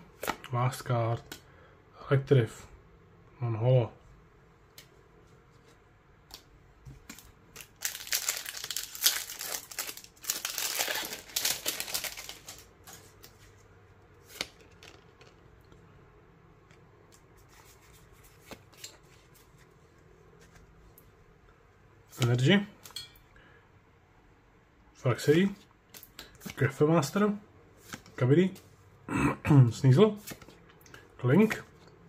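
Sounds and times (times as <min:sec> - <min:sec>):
trading cards being handled: 0:04.8 - 0:15.6, 0:16.6 - 0:21.1
foil wrapper tearing and crinkling: 0:07.1 - 0:12.7.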